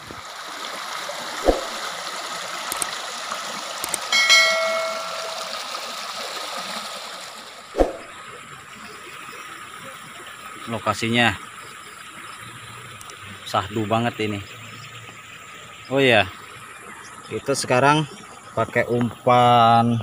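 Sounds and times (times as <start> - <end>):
floodwater rushing: 0.0 - 9.3
short electronic chime: 4.2 - 5.7.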